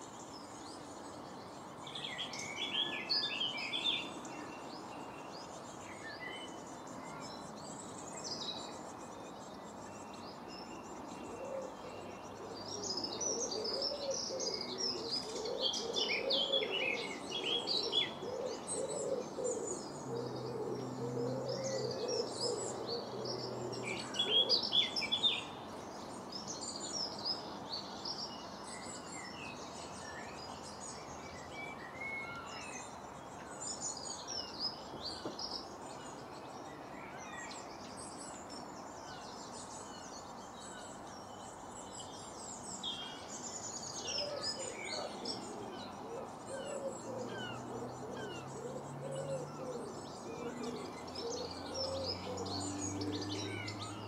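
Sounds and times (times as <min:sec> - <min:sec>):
songbirds chirping: 0:00.0 - 0:54.0
pigeon cooing: 0:18.1 - 0:23.2, 0:44.2 - 0:52.3.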